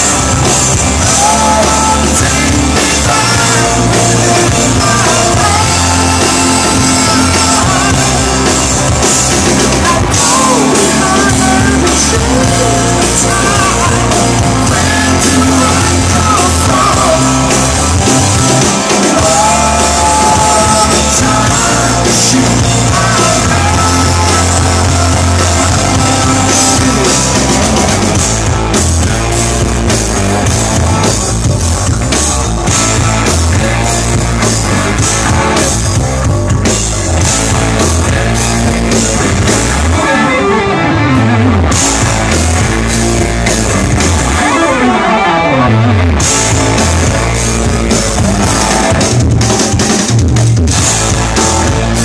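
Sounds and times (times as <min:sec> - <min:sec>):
person singing lead vocal: 0:00.0 - 0:31.1, 0:37.4 - 0:49.8
live rock band playing: 0:00.0 - 0:52.0.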